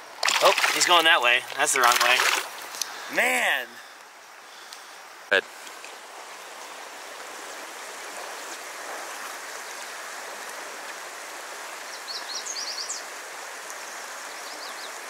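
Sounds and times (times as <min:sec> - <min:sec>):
creek flowing: 0:00.0 - 0:15.0
bird chirping: 0:11.9 - 0:13.1.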